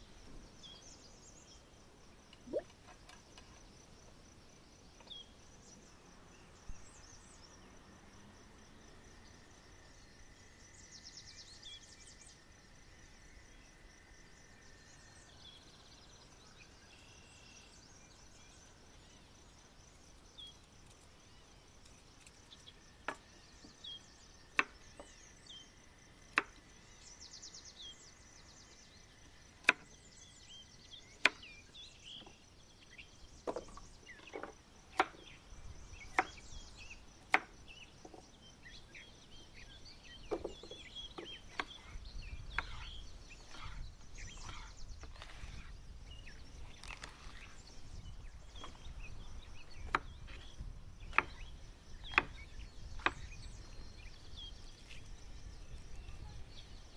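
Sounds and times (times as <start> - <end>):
high insect hum: 0.0 - 56.9
bird chirps: 2.4 - 3.6, 37.7 - 56.9
sharp chopping knocks: 51.1 - 51.4.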